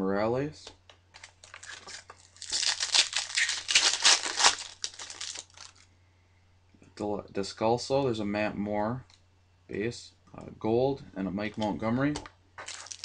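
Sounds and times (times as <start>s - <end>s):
foil wrapper crinkling and tearing: 1.2s - 5.9s, 12.6s - 13.0s.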